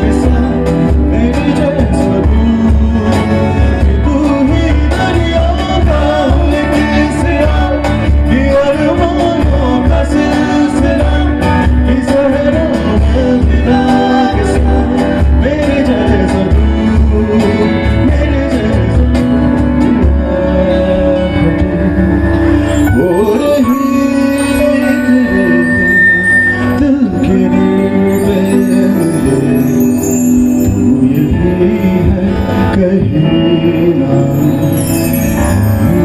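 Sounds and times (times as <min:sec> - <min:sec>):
cajon beat: 0:00.0 - 0:22.2
electric bass guitar: 0:00.0 - 0:36.0
keyboard: 0:00.0 - 0:36.0
man singing: 0:00.0 - 0:36.0.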